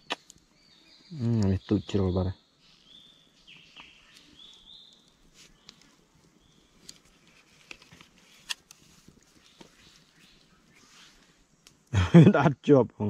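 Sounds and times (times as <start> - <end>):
sharp clicks: 0.0 - 0.5
rustling: 4.1 - 11.8.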